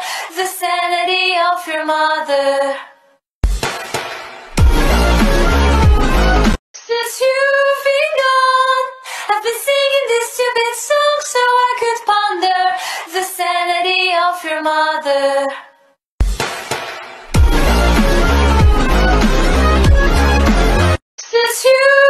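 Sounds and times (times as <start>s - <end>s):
woman singing unaccompanied: 0.4s - 2.8s, 6.9s - 15.5s, 21.3s - 22.0s.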